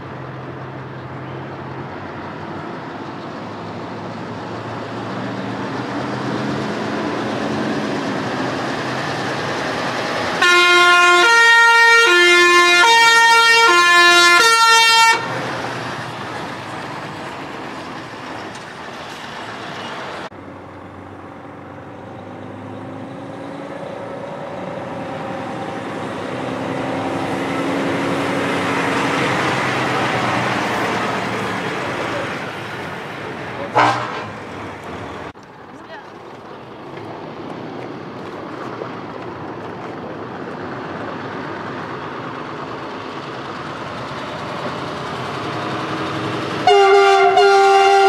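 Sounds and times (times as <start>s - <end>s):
truck diesel engines running: 0.0s - 48.0s
truck air horn blaring: 10.4s - 15.4s, 33.7s - 34.5s, 46.6s - 48.0s.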